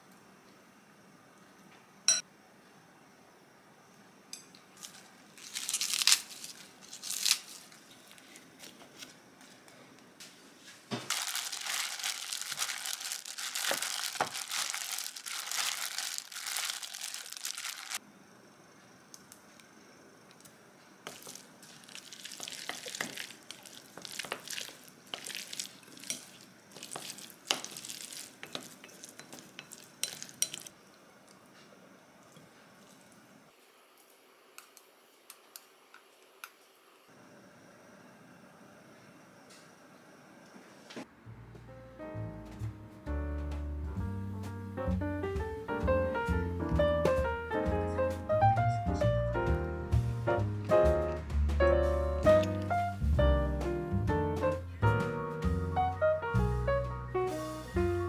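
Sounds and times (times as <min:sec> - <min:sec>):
plastic glove crinkling: 0:04.8 - 0:09.2, 0:11.1 - 0:18.0, 0:21.1 - 0:30.7.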